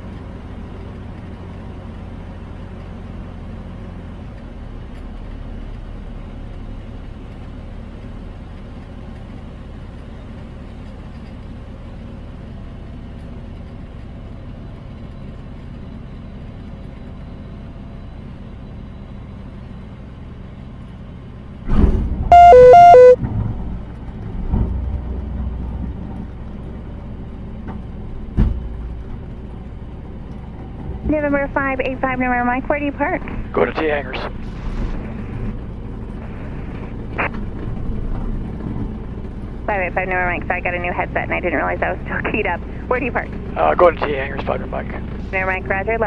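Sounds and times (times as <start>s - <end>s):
aircraft engine rumble: 0.0s - 46.0s
two-tone beeping: 22.3s - 23.2s.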